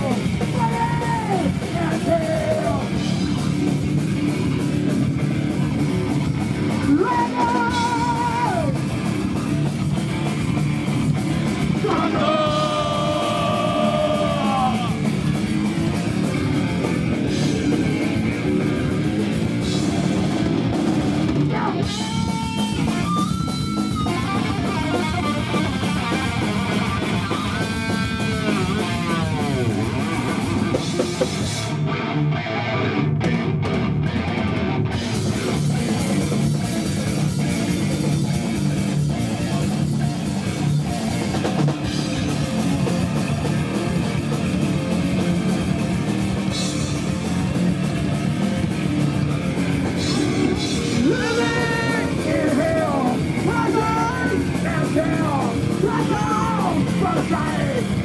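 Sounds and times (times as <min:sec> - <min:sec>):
shouted vocals: 0:00.0 - 0:03.0, 0:06.9 - 0:08.8, 0:11.8 - 0:15.1, 0:21.4 - 0:24.0, 0:50.0 - 0:58.0
fast drum kit: 0:00.0 - 0:32.0, 0:33.2 - 0:58.0
distorted electric guitars: 0:00.0 - 0:58.0.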